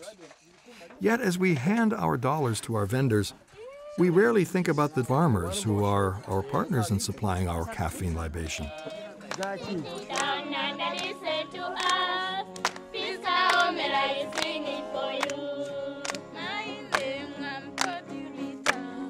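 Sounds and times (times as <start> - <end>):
women and children singing: 8.6 - 19.0
hand claps: 8.7 - 11.2, 11.8 - 15.4, 16.0 - 16.3, 16.9 - 18.0, 18.6 - 18.9.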